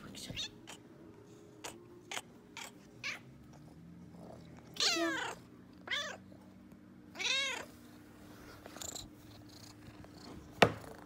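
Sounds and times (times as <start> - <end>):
cat meowing: 4.7 - 6.2, 7.1 - 7.7.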